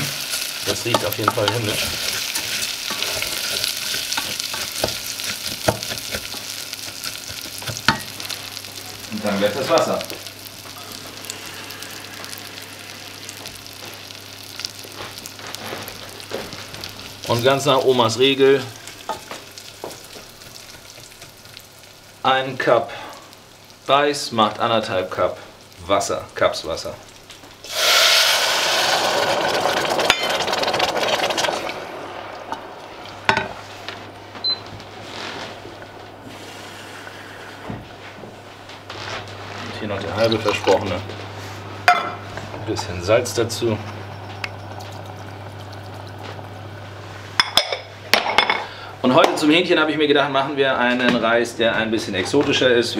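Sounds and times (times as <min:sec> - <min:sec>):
low steady hum: 0:00.0 - 0:27.7, 0:29.6 - 0:52.9
rice frying in oil: 0:00.0 - 0:38.0, 0:38.6 - 0:48.8
water sizzling in hot pot: 0:00.0 - 0:48.8
wooden spoon stirring: 0:00.6 - 0:08.0.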